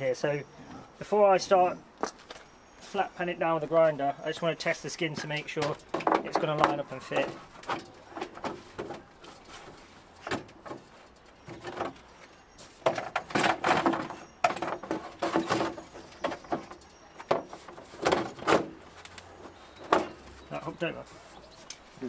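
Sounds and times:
metal scraping and clunking: 5.0 - 21.8.

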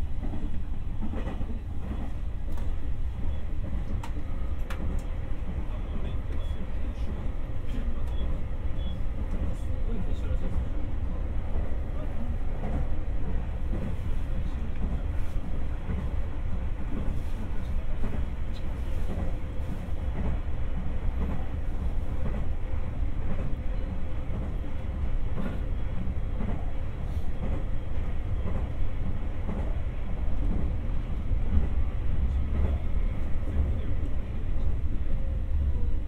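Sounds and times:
train wheels rumbling: 0.0 - 36.0
faint clicks: 3.9 - 5.1.

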